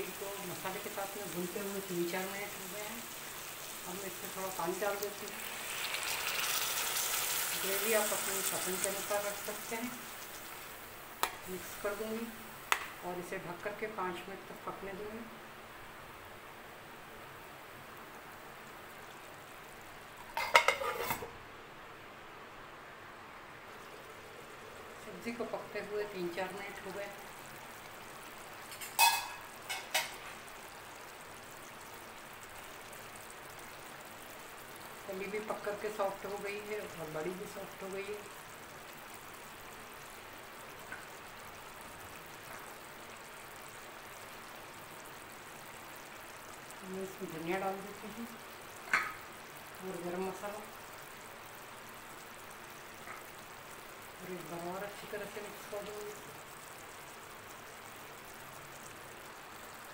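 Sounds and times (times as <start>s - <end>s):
faint steady hiss: 0.0s - 59.9s
metal lid clattering on pan: 20.3s - 21.3s, 28.8s - 30.1s.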